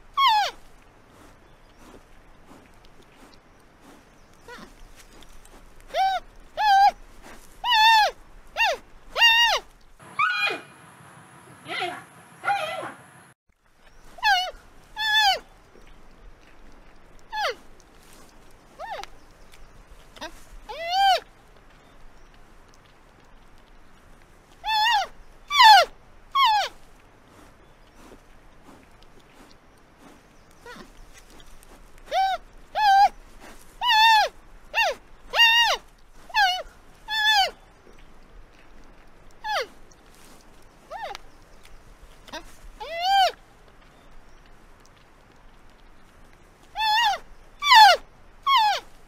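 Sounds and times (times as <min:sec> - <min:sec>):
panda high-pitched calls: 0:07.6 - 0:10.7, 0:24.6 - 0:26.7, 0:36.4 - 0:37.6, 0:46.8 - 0:48.8.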